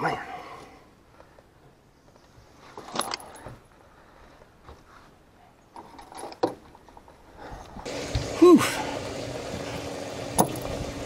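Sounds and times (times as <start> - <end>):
fishing tackle jingling and knocking: 2.8 - 3.7.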